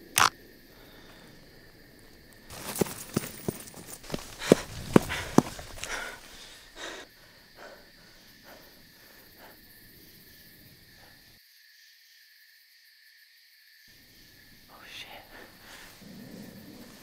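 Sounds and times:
breathing: 0:00.6 - 0:01.8, 0:02.5 - 0:11.4, 0:14.7 - 0:17.0
faint rustles: 0:02.0 - 0:07.0, 0:15.1 - 0:17.0
footsteps crunching on dry leaves: 0:02.5 - 0:06.7.

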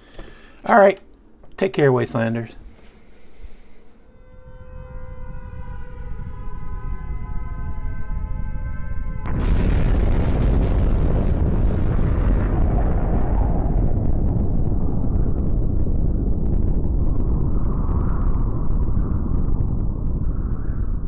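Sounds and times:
loud noise blast with deep rumble: 0:04.6 - 0:21.0.

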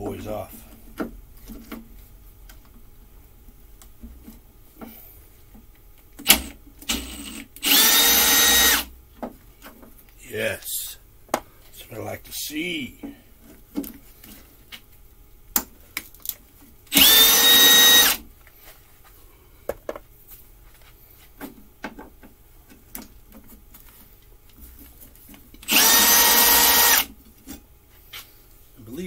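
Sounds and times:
impact driver whining: 0:06.2 - 0:08.9, 0:16.9 - 0:18.2, 0:25.6 - 0:27.1.

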